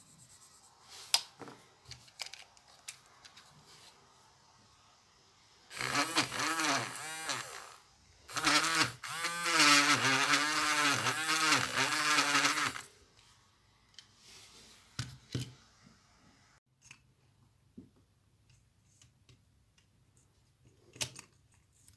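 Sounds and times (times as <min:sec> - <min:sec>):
electric eraser motor humming: 0:05.7 - 0:12.8.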